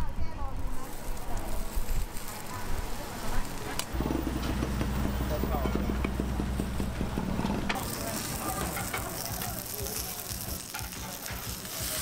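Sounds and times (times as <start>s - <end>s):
steady low hum: 0.4s - 10.0s
egg sizzling on hot plate: 0.6s - 12.0s.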